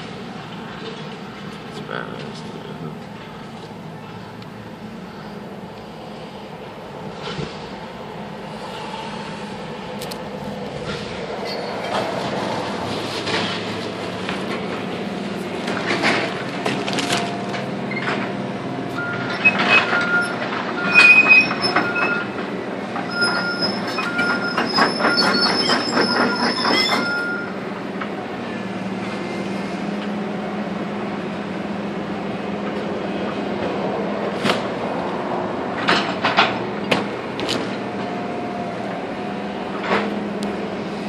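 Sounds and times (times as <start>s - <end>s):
excavator engine running: 0.0s - 41.0s
high squeals: 18.9s - 22.4s, 23.0s - 27.6s.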